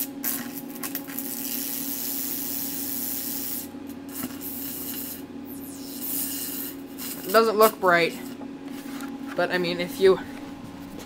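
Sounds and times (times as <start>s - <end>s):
arc lamp hissing: 0.0s - 8.1s
low power supply hum: 0.0s - 11.0s.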